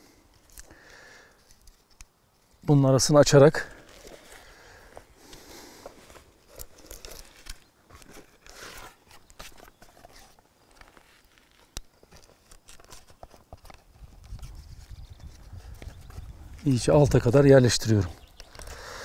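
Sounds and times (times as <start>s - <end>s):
bark and stick rustling and knocking: 3.8s - 5.1s.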